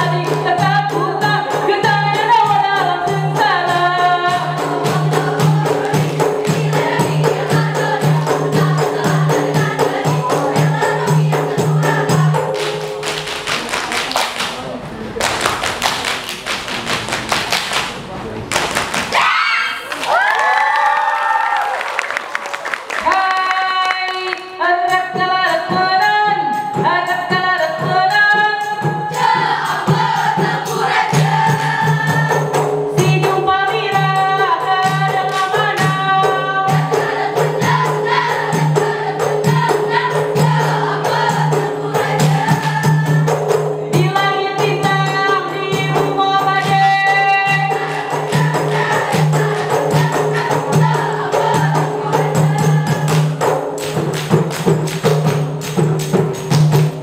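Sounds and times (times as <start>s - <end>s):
group singing a melodic chant: 3.7s - 13.4s, 29.1s - 32.7s, 34.8s - 54.1s
rhythmic hand claps and body slaps: 4.9s - 24.6s, 29.2s - 32.7s, 34.8s - 36.0s, 36.8s - 43.6s, 46.6s - 57.0s.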